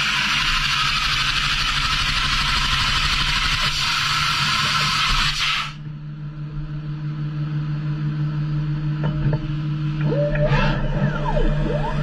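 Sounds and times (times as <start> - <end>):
low machine hum: 5.7 - 12.0.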